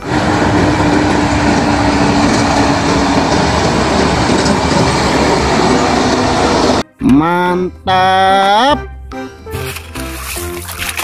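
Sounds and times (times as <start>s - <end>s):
dump truck engine and tyres: 0.0s - 7.8s.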